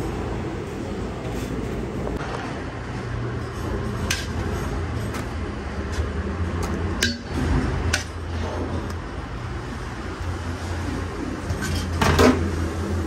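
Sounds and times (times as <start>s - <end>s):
steady low hum: 0.0s - 13.0s
utensils and dishes clinking: 11.5s - 12.4s.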